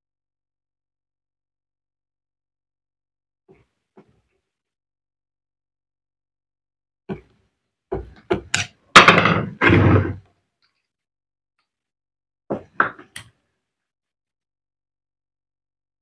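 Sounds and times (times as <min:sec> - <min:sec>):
metal tools clattering on workbench: 0:09.0 - 0:09.6.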